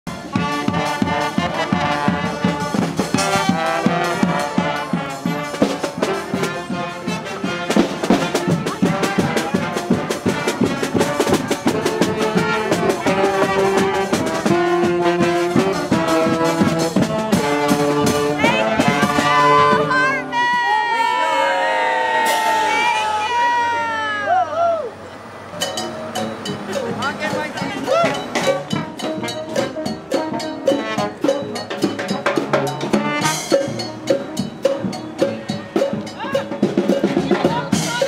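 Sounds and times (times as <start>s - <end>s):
bass drum beat: 0.1s - 20.9s, 25.6s - 38.0s
brass band playing: 0.1s - 24.3s, 25.2s - 38.0s
sousaphone bass line: 25.6s - 38.0s.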